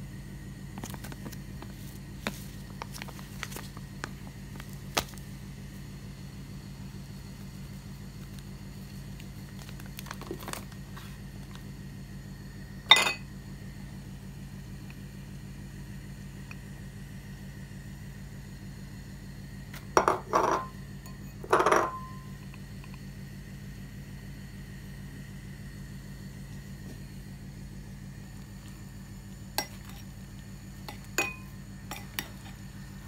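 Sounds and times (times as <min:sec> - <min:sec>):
steady low hum: 0:00.0 - 0:33.0
utensils clinking on glass bowl: 0:12.9 - 0:13.2, 0:20.0 - 0:22.1, 0:31.2 - 0:32.2.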